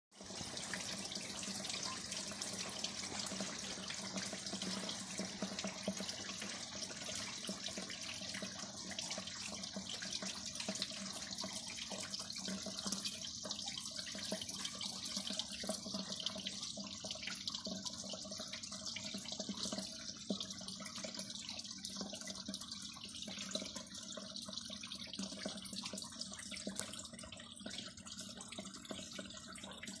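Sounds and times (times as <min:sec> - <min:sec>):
rain on concrete: 0:00.1 - 0:13.1.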